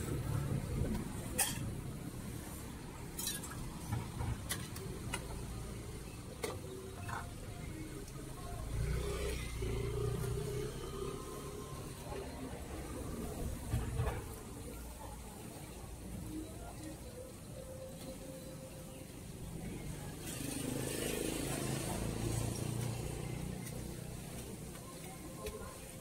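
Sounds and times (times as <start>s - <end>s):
metal ladles clinking against bowls: 1.3s - 1.7s, 3.2s - 3.7s.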